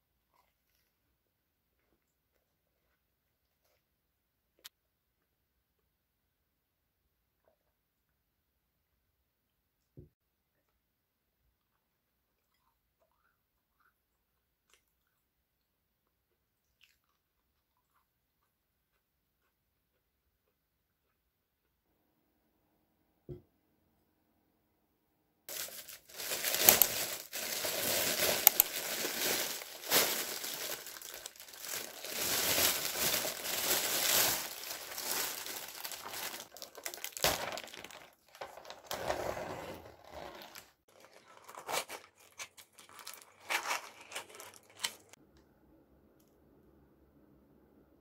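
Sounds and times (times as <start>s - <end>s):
plastic bag rustling and crinkling: 25.5s - 45.2s.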